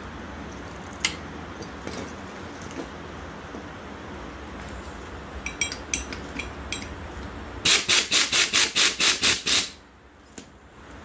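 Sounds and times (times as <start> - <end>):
pneumatic impact wrench bursts: 7.6 - 9.8.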